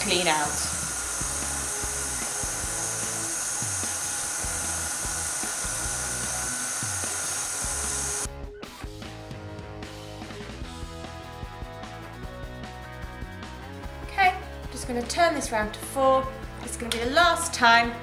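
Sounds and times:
stand mixer motor whine: 0:00.0 - 0:08.3
background music: 0:00.0 - 0:18.0.

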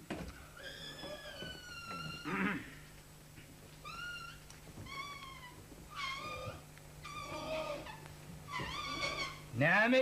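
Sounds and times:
high-pitched animal cries: 0:00.6 - 0:02.8, 0:03.8 - 0:09.5.

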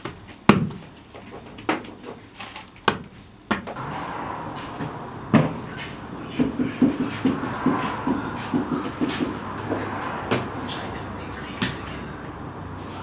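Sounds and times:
steady rushing noise: 0:03.8 - 0:13.0.

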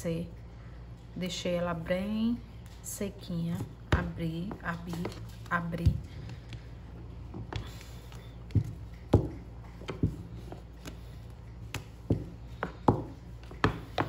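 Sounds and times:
rolling pin rolling fondant: 0:03.5 - 0:14.0.

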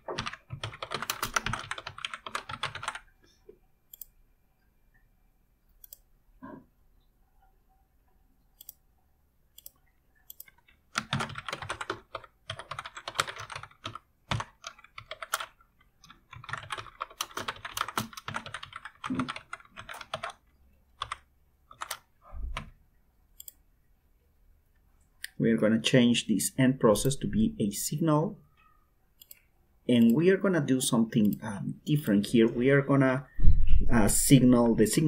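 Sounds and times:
typing on keyboard: 0:00.0 - 0:03.1, 0:09.6 - 0:22.7.

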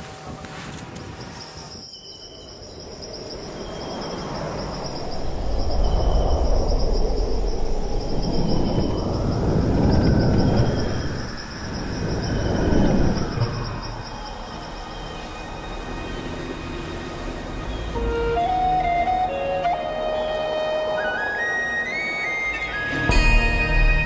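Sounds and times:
wind-like rushing noise: 0:00.0 - 0:18.0
insects buzzing: 0:00.2 - 0:23.1.

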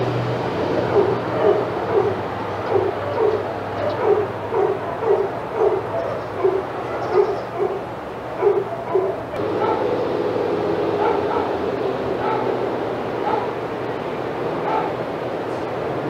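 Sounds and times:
dog barking: 0:00.8 - 0:10.0, 0:11.0 - 0:11.6, 0:12.2 - 0:12.6, 0:13.2 - 0:13.6, 0:14.6 - 0:15.0.

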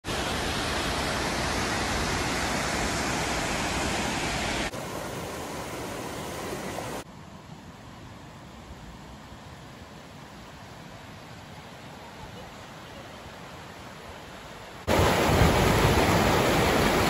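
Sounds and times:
waterfall rushing: 0:00.0 - 0:07.1, 0:11.8 - 0:17.0.

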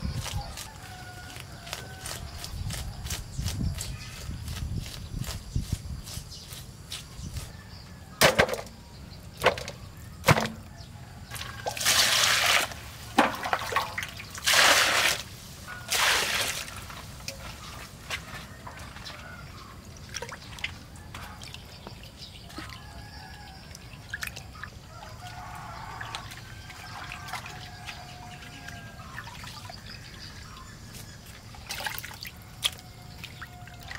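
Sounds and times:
water splashing and sloshing: 0:09.4 - 0:33.9
water dripping: 0:20.0 - 0:30.2, 0:31.6 - 0:33.9.

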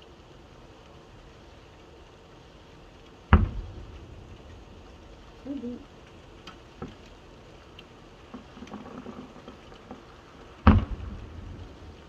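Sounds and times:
steady background hiss: 0:00.0 - 0:12.0
distant fireworks popping: 0:03.1 - 0:12.0.

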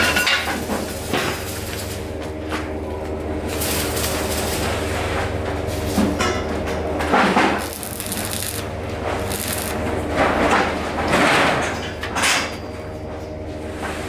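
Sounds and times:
steady electrical hum: 0:00.0 - 0:14.0
welding arc crackling: 0:03.4 - 0:04.7, 0:07.5 - 0:10.0.

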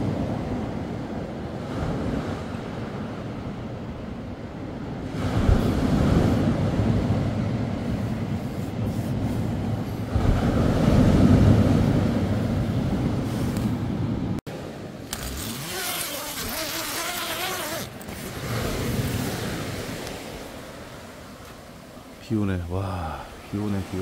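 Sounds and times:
heavy surf breaking: 0:05.0 - 0:24.0.

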